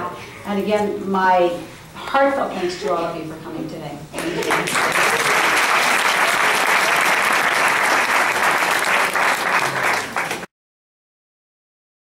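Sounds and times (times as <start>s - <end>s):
audience clapping: 4.2s - 10.5s.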